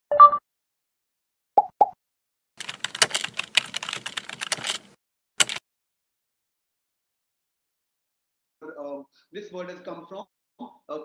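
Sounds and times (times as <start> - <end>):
keyboard key clicks: 2.6 - 5.6.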